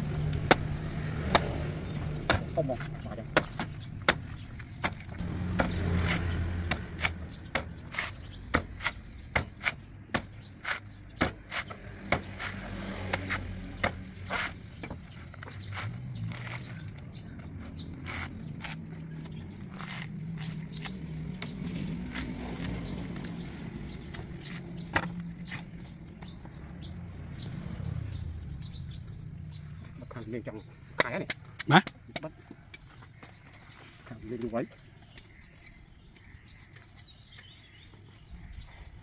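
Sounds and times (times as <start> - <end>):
cleaver chopping coconut husk: 0.0 - 25.8.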